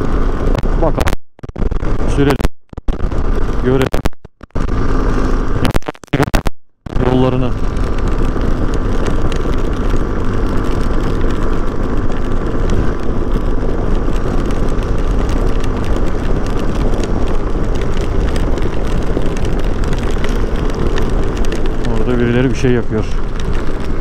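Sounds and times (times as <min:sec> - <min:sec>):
motorcycle engine running: 0:00.0 - 0:24.0
wind rumble on microphone: 0:00.0 - 0:24.0.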